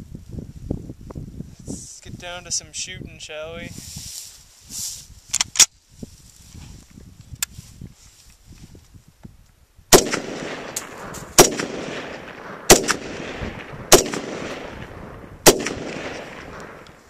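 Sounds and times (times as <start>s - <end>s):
rifle shots with echo: 9.9s - 17.0s.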